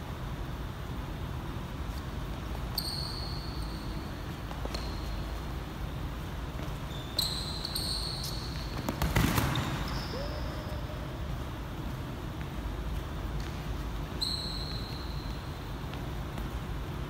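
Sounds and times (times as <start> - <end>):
low room hum: 0.0 - 17.0
sneakers squeaking on floor: 1.9 - 10.9, 12.4 - 16.9.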